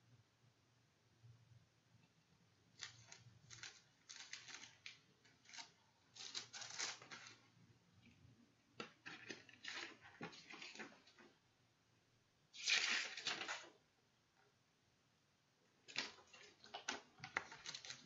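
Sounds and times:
clicks and rustles of cd case: 8.8s - 11.3s, 15.9s - 18.0s.

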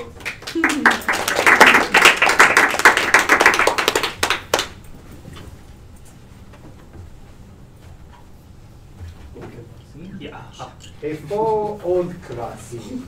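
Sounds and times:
small group applauding: 0.0s - 4.9s.

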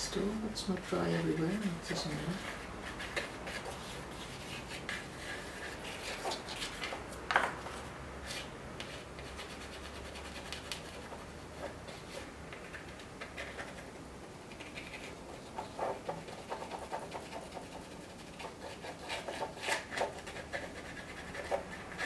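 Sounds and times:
pastel scratching on paper: 1.5s - 7.0s, 8.2s - 22.0s.

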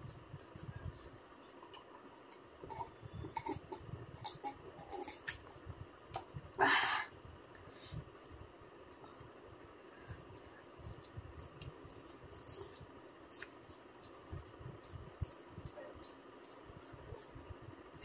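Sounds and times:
breath of air: 6.6s - 8.4s
wet chewing clicks and smacks: 8.9s - 18.0s.

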